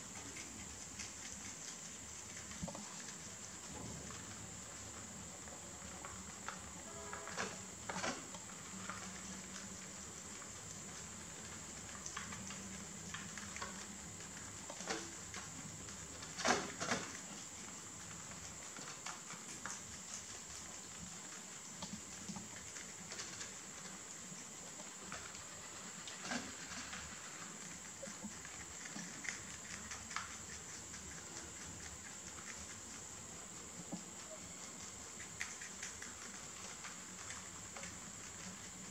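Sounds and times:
rabbits chewing leaves: 0:00.0 - 0:38.9
high-pitched hiss: 0:02.6 - 0:09.3.

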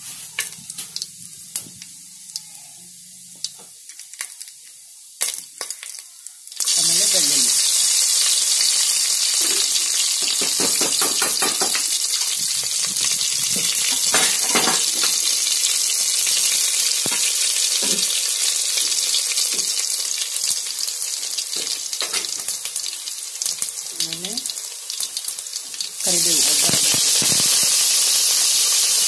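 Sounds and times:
garlic sizzling in hot oil: 0:00.0 - 0:29.0
crackles and pops: 0:03.2 - 0:06.7, 0:17.0 - 0:17.9, 0:26.5 - 0:28.0.

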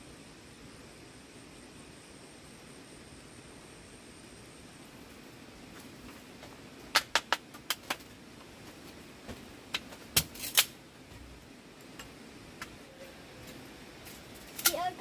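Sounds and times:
faint steady hiss: 0:00.0 - 0:15.0
wood fire crackling and popping: 0:05.8 - 0:15.0.

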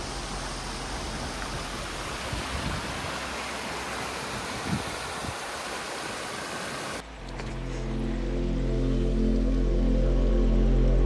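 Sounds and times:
stream rushing over stones: 0:00.0 - 0:07.4.

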